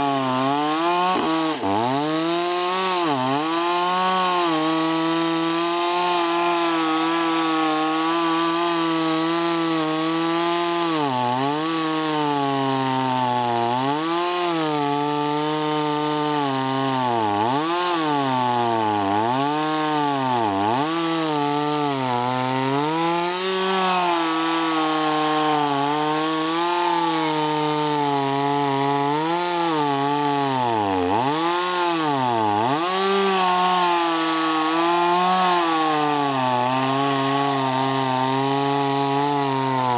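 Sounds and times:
chainsaw cutting wood: 0:00.0 - 0:39.9.

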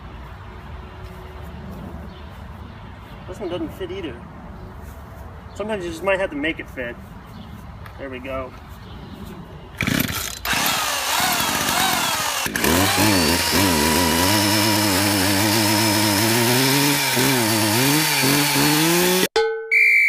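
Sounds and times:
chainsaw running: 0:09.8 - 0:19.3.

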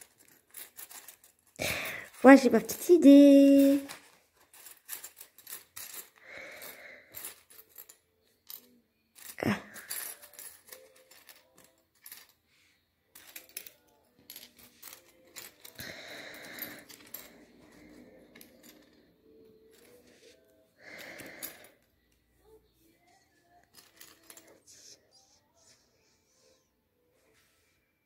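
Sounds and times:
plastic puzzle pieces clattering: 0:00.0 - 0:12.4, 0:13.1 - 0:21.8, 0:23.6 - 0:24.8.

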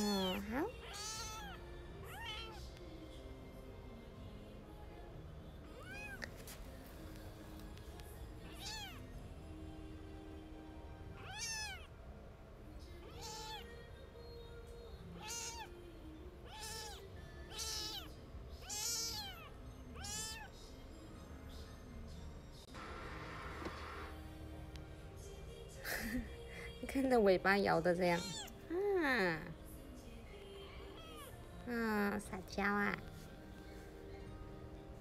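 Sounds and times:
kitten mewing: 0:00.0 - 0:02.7, 0:05.8 - 0:06.3, 0:08.4 - 0:09.1, 0:11.2 - 0:11.9, 0:13.0 - 0:13.7, 0:15.2 - 0:15.8, 0:16.4 - 0:20.5, 0:28.2 - 0:28.8.

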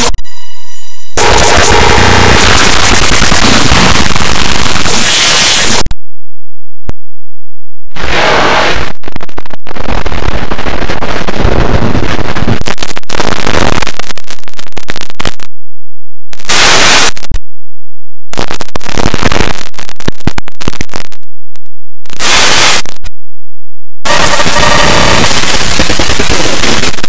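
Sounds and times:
harsh distorted cartoon audio: 0:00.0 - 0:05.9, 0:24.1 - 0:27.0.

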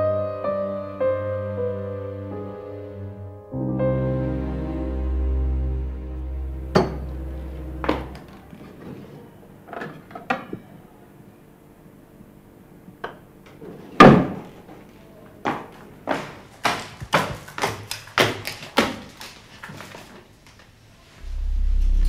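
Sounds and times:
soft sad keyboard music: 0:00.0 - 0:08.7.

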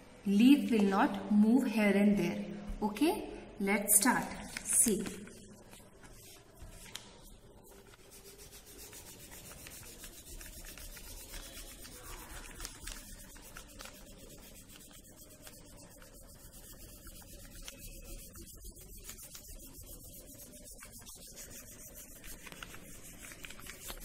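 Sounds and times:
crayon rubbing on paper: 0:05.7 - 0:24.0.

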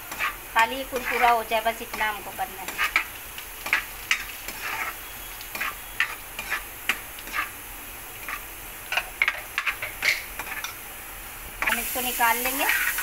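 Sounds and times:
spatula scraping a pan: 0:00.0 - 0:07.6, 0:08.2 - 0:10.8
nuts sizzling in oil: 0:00.0 - 0:13.0.

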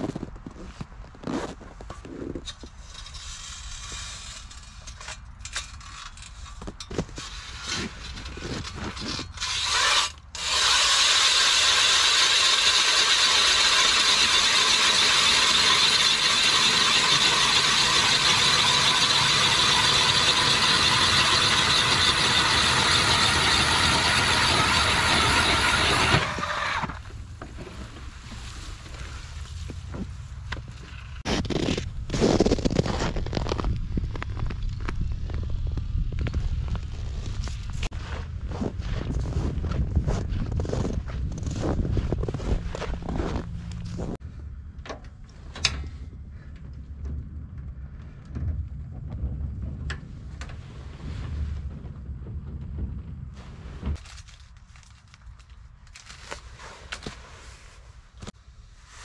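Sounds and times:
power ice auger running: 0:09.4 - 0:27.1.

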